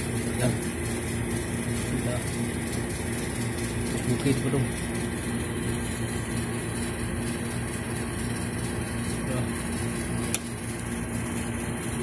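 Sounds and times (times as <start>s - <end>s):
idling motor hum: 0.0s - 12.0s
sharp click: 10.3s - 10.5s.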